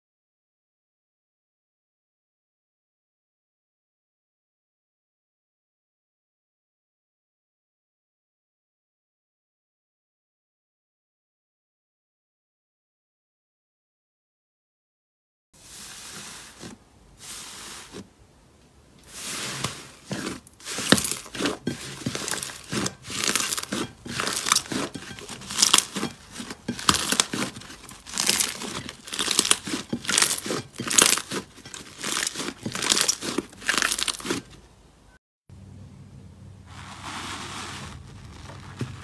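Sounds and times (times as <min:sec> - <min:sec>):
slime crackling and popping: 0:20.6 - 0:34.5.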